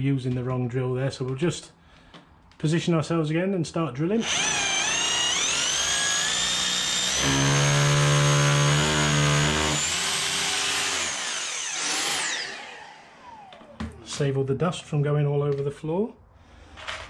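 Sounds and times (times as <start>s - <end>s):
drill bit buzzing into brick: 4.2s - 13.5s
electric drill whining: 4.2s - 13.8s.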